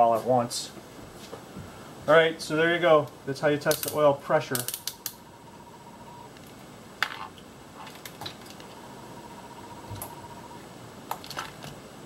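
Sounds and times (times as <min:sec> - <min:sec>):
faint high tone: 0:08.6 - 0:10.6.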